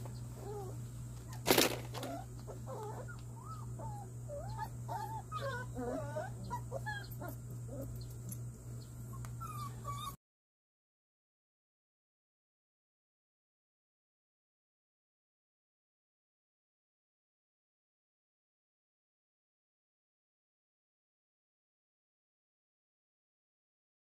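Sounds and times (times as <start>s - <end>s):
low steady hum: 0.0s - 10.2s
puppies whimpering and squealing: 0.1s - 10.2s.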